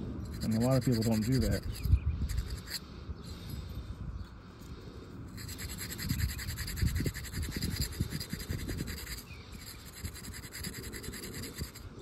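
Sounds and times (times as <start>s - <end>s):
sand cloth scratching metal: 0.3s - 2.8s, 5.4s - 12.0s.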